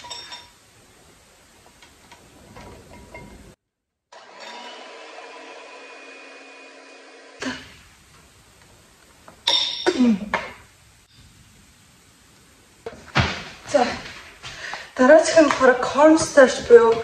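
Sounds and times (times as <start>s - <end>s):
electric hand mixer humming: 4.1s - 7.6s
sharp knocks and clatters: 12.8s - 14.6s.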